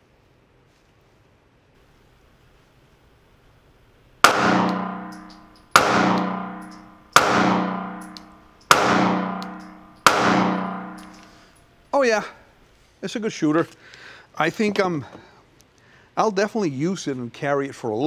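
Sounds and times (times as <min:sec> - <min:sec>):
pistol shots echoing indoors: 0:04.2 - 0:11.6.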